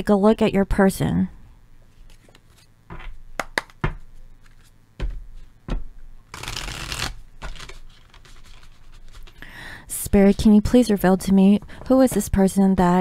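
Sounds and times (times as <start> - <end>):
cards rustling while shuffled: 2.0 - 2.7, 4.4 - 4.8, 6.3 - 9.5.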